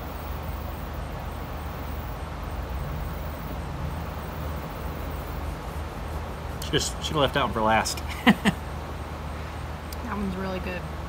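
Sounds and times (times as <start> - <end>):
even hiss: 0.0 - 11.0
low rumble: 1.8 - 7.6.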